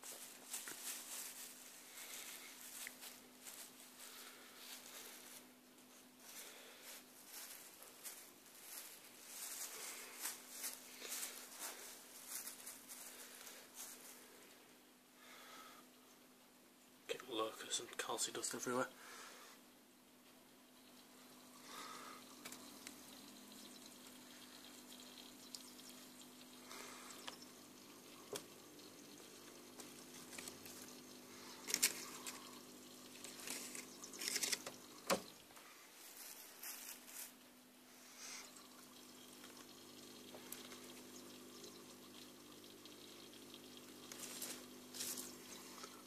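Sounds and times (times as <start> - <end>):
small waterfall trickling: 6.3 - 14.0, 20.5 - 35.6, 38.1 - 46.0
clicks and rustles: 31.6 - 32.5.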